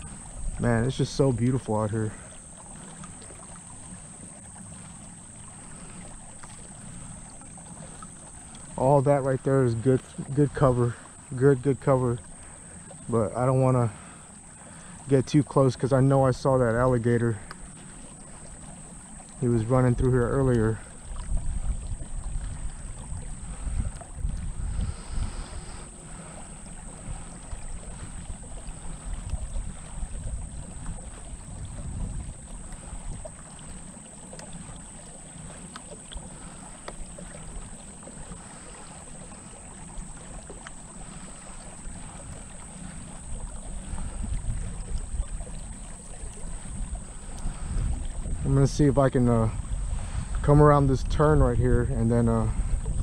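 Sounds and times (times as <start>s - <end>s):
wind rumble on microphone: 0.0s - 2.3s, 18.6s - 35.8s, 36.4s - 53.0s
water washing along kayak hull: 0.0s - 53.0s.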